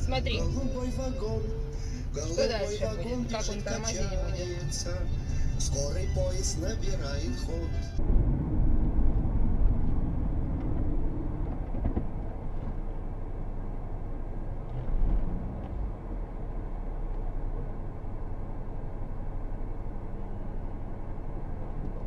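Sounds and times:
car engine idling: 0.0s - 22.0s
road rumble: 0.0s - 22.0s.

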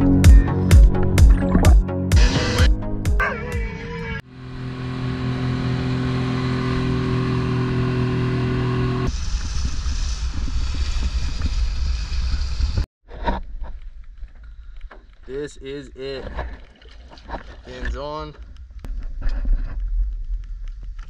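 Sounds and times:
outboard motor humming: 4.3s - 9.1s
rough rushing noise: 5.9s - 12.9s.

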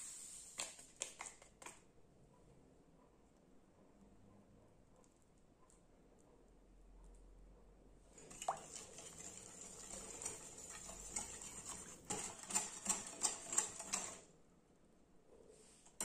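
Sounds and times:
whisk swishing in bowl: 8.1s - 14.3s.

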